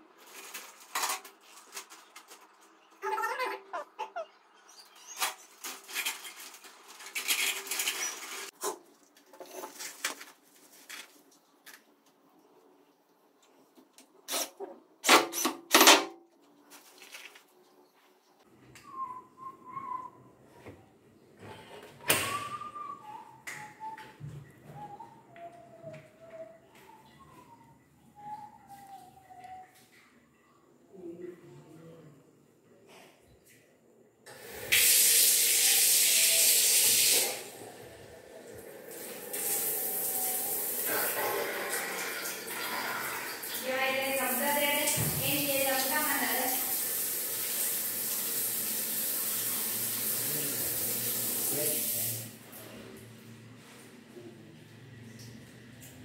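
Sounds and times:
person whistling a tune: 0:18.8 - 0:20.3, 0:22.1 - 0:29.7
shower water spraying: 0:34.3 - 0:37.8, 0:38.5 - 0:52.4.

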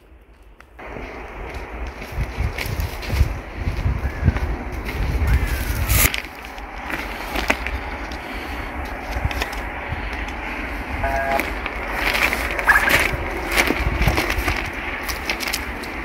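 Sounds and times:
footsteps on dry grass and dirt: 0:00.0 - 0:16.0
wind buffeting microphone: 0:00.0 - 0:16.0
short chirps: 0:11.0 - 0:11.5.

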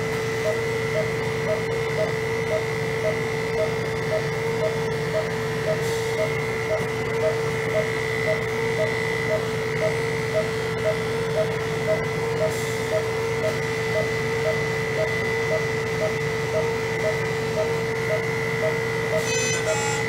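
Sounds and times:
short beeps: 0:12.9 - 0:20.0
electric clippers running: 0:16.6 - 0:20.0.

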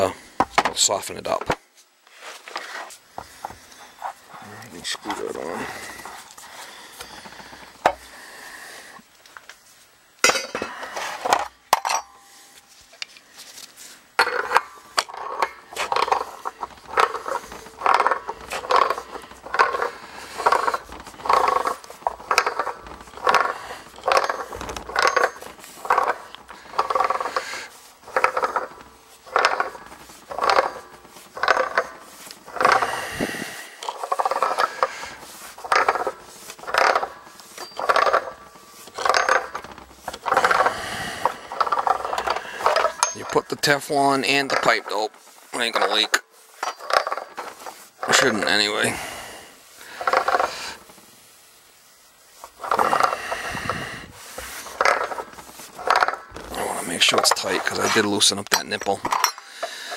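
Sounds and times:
wrench scraping metal: 0:14.2 - 0:49.2, 0:49.9 - 0:50.8, 0:52.4 - 0:59.9.

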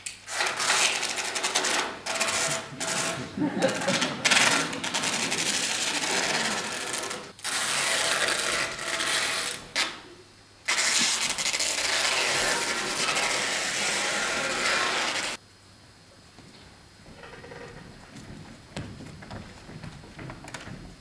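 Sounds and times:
packing tape ripping off roll: 0:00.1 - 0:10.0, 0:10.7 - 0:15.4.

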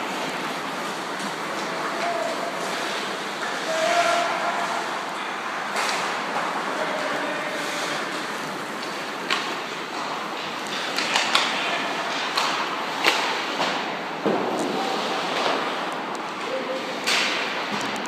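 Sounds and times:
sharp cracks and knocks: 0:08.8 - 0:16.2.

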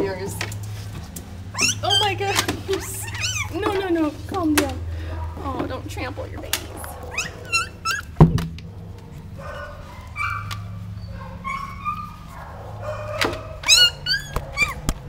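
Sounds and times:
dog and puppies whining: 0:01.4 - 0:04.1, 0:06.6 - 0:08.2, 0:09.0 - 0:15.0
loud thump: 0:08.2 - 0:08.6.

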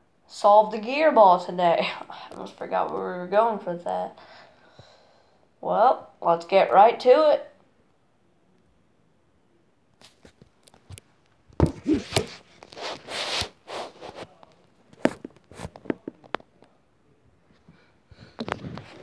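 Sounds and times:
rustling against microphone: 0:11.6 - 0:16.7, 0:18.2 - 0:19.0.

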